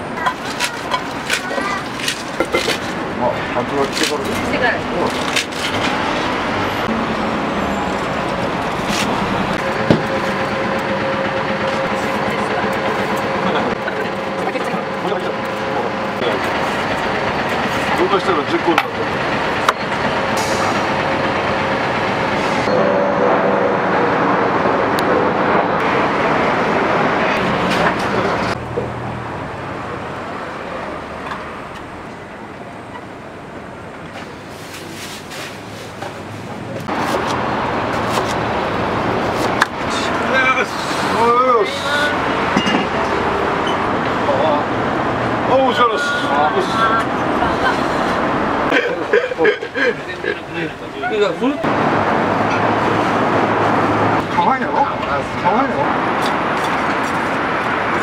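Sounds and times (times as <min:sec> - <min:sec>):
road traffic noise: 0:00.0 - 0:58.0.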